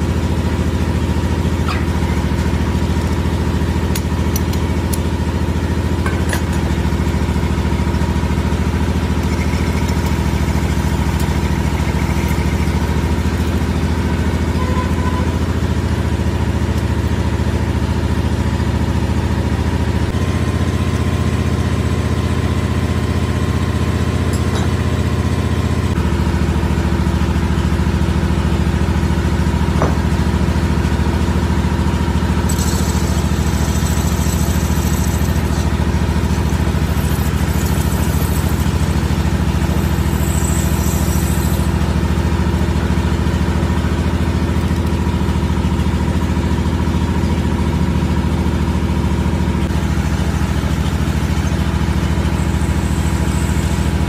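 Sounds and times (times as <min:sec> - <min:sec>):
lathe motor humming: 0:00.2 - 0:17.9, 0:32.0 - 0:46.4
tool cutting steel hiss: 0:32.5 - 0:41.9.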